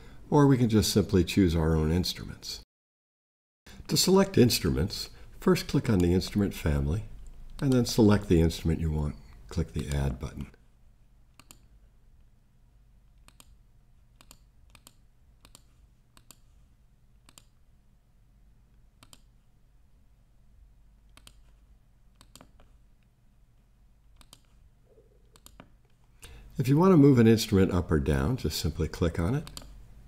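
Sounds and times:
faint low hum: 3.7 - 30.0
computer mouse clicks: 7.1 - 7.8, 11.3 - 11.7, 13.1 - 16.6, 17.2 - 17.6, 19.0 - 19.4, 21.1 - 23.1, 24.1 - 24.6, 25.2 - 26.0, 29.4 - 29.8.

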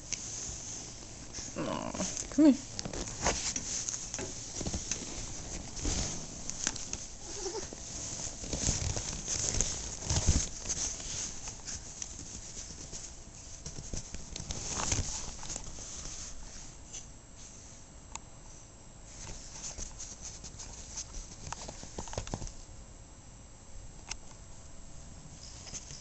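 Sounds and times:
puppy rustling on couch: 0.0 - 16.8, 19.1 - 22.6
puppy whimpering: 7.2 - 7.7.

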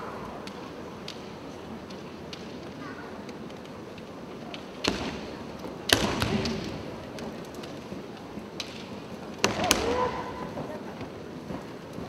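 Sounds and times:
person shouting: 9.6 - 10.5.

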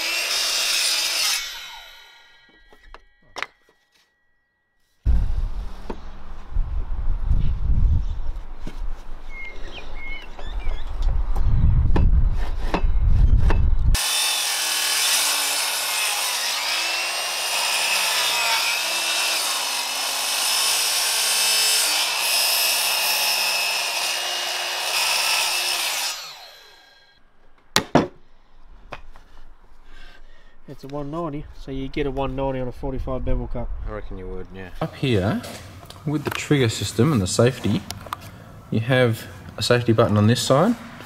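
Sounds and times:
saw blade whining through wood: 0.0 - 4.2, 13.9 - 27.2
low rumble: 5.1 - 8.5, 31.3 - 34.8.

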